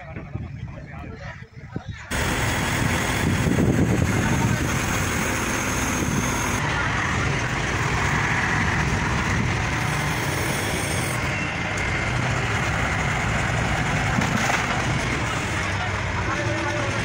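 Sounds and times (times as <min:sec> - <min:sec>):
diesel engine running: 0:02.1 - 0:17.0.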